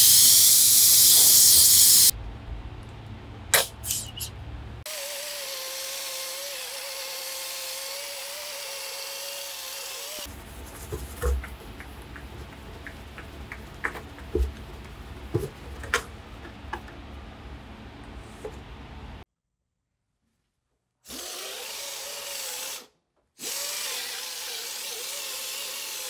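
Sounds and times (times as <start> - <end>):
handheld power tool whining: 4.9 - 10.3, 21.1 - 26.0.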